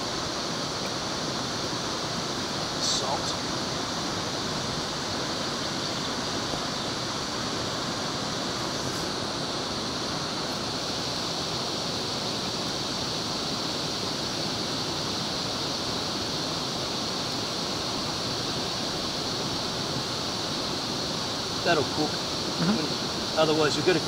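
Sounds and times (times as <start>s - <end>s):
mountain river rushing: 0.0s - 24.0s.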